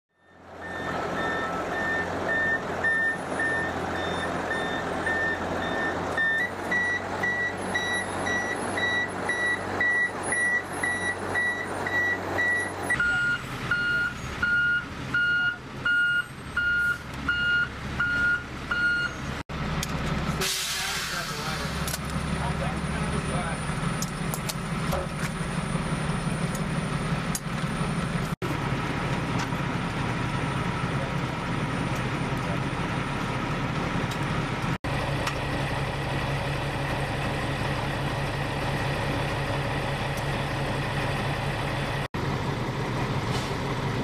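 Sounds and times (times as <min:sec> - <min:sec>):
truck backup alarm beeping: 0:00.1 - 0:19.4
truck engines running: 0:00.1 - 0:44.0.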